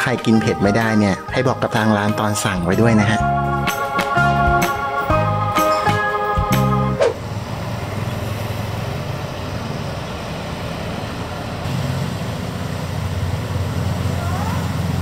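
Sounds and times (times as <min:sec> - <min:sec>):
organ-like music: 0:00.0 - 0:07.2
road noise: 0:00.0 - 0:15.0
vehicle engine hum: 0:00.0 - 0:15.0.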